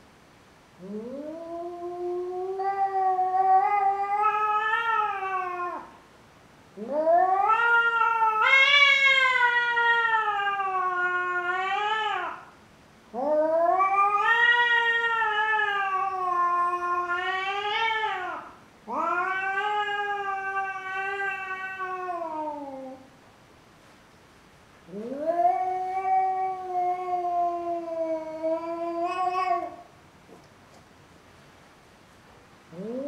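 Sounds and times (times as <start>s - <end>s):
cat yowling: 0.8s - 5.9s, 6.8s - 12.5s, 13.2s - 23.1s, 24.9s - 29.9s, 32.7s - 33.0s.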